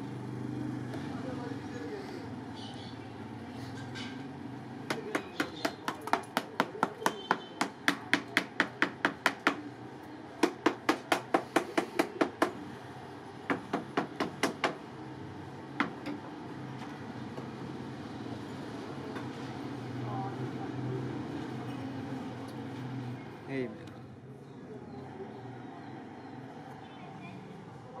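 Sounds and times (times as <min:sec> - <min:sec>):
sharp hard knocks: 0:04.9 - 0:09.7, 0:13.5 - 0:14.8.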